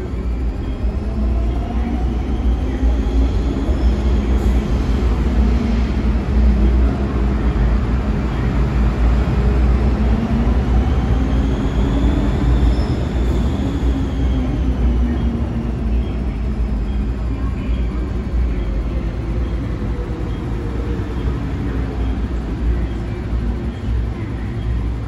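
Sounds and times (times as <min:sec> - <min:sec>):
high train whine: 0:00.0 - 0:25.0.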